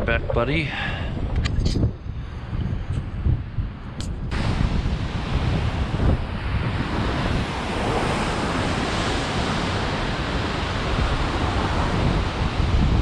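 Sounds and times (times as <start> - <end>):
wind buffeting microphone: 0.0 - 13.0
surf breaking on rocks: 4.3 - 13.0.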